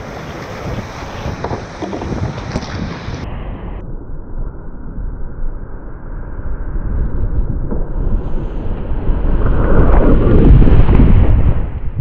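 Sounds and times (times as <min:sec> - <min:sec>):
wind buffeting microphone: 0:00.0 - 0:03.8, 0:06.6 - 0:12.0.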